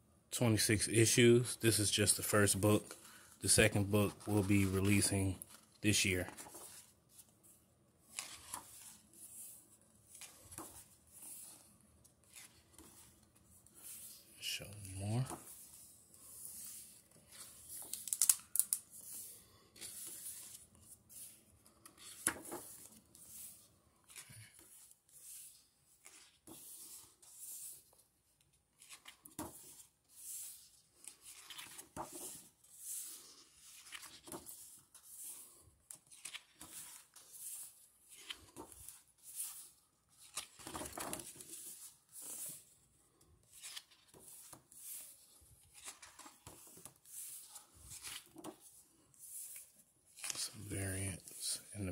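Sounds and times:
book pages turning: 0:01.8 - 0:51.9.

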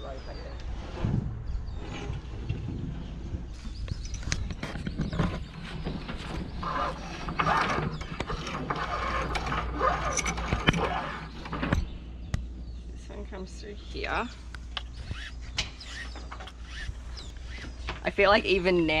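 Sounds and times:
rope rubbing and scraping: 0:00.7 - 0:11.9, 0:15.0 - 0:17.9.

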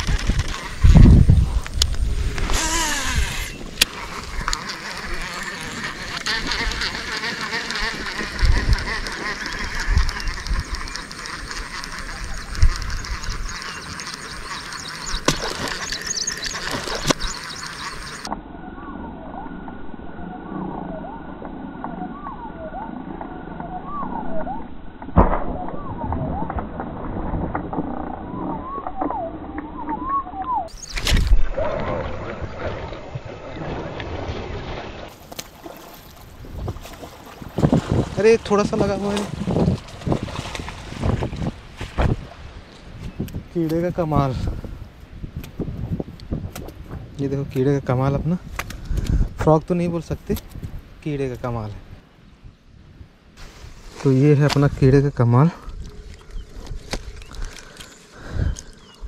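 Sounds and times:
water splashing: 0:02.4 - 0:18.3, 0:30.7 - 0:43.0
fishing reel whirring: 0:02.5 - 0:18.3
birds whistling: 0:08.9 - 0:19.6, 0:21.9 - 0:23.0, 0:23.6 - 0:24.7, 0:28.3 - 0:31.2, 0:56.0 - 0:59.0.

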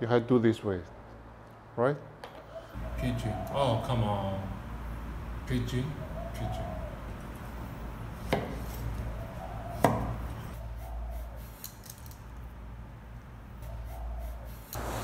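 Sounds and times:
faint pigeon cooing: 0:02.4 - 0:04.7, 0:05.6 - 0:07.9, 0:08.9 - 0:11.6, 0:13.6 - 0:14.7
steady low hum: 0:02.5 - 0:15.0.

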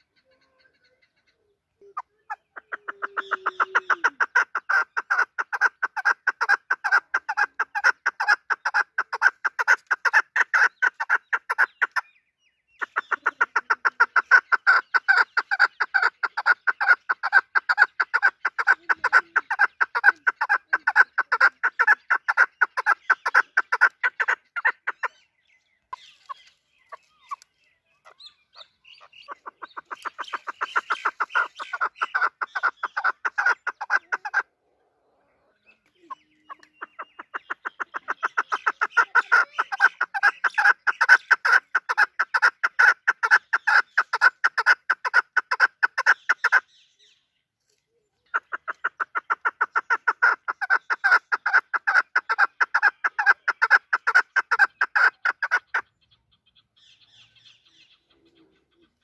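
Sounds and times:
partridge calling rapid chuk notes: 0:00.0 - 0:34.5, 0:35.8 - 0:47.2, 0:48.3 - 0:59.0.

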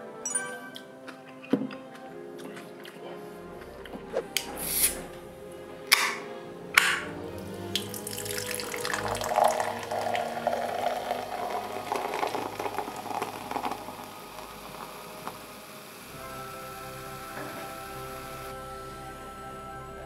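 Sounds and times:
can cracked open with hiss: 0:04.6 - 0:05.0, 0:05.9 - 0:06.2
cola pouring and fizzing in glass: 0:07.5 - 0:16.1.

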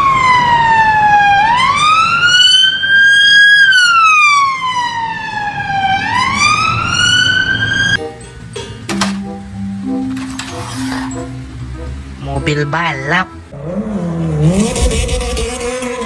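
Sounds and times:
police siren slow wail: 0:00.0 - 0:08.0.

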